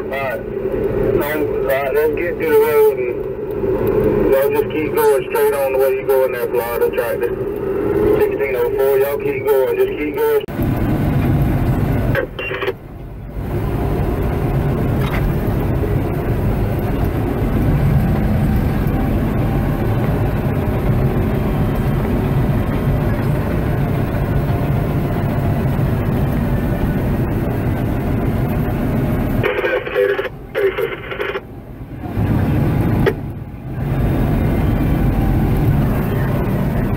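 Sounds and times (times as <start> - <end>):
diesel engine running: 0.0 - 36.9.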